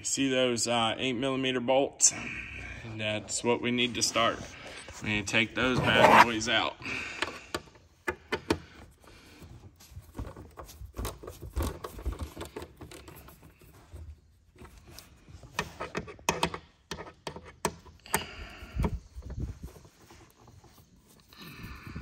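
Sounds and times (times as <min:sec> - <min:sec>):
socket wrench metal clicks and knocks: 0:15.9 - 0:18.3.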